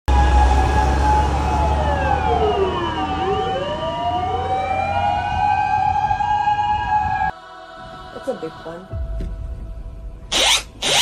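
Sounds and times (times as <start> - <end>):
emergency sirens wailing: 0.1 - 7.4
low rumble: 8.9 - 10.3.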